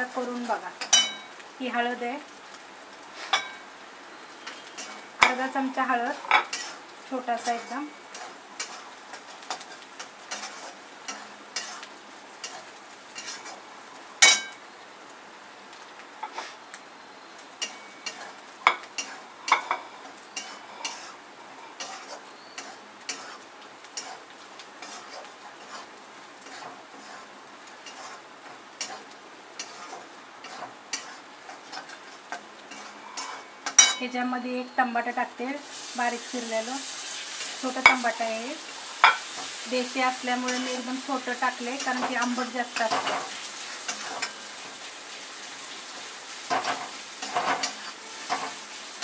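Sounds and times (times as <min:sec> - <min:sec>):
low sizzle of frying: 0:00.0 - 0:49.0
spatula scraping metal pan: 0:06.2 - 0:13.6, 0:17.6 - 0:34.0, 0:39.0 - 0:44.8, 0:46.0 - 0:48.8.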